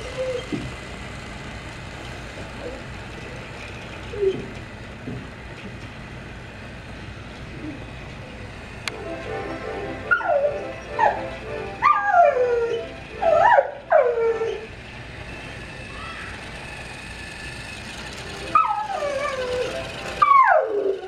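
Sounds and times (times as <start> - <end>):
dog whimpering and yelping: 0.0 - 0.6, 4.1 - 4.5, 10.1 - 14.7, 18.5 - 21.0
steady low hum: 0.0 - 21.0.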